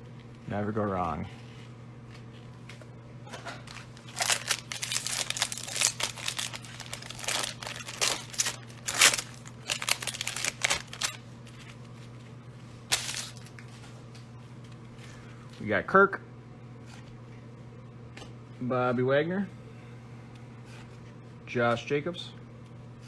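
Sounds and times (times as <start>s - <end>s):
wrapper tearing and crinkling: 3.7s - 11.2s, 12.9s - 13.7s.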